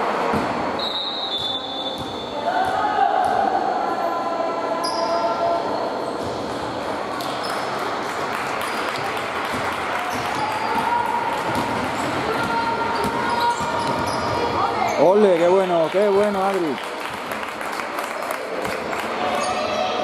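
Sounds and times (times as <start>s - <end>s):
sneakers squeaking: 0.3s - 2.8s, 4.8s - 7.8s, 8.6s - 15.2s
basketball bouncing: 9.0s - 14.6s.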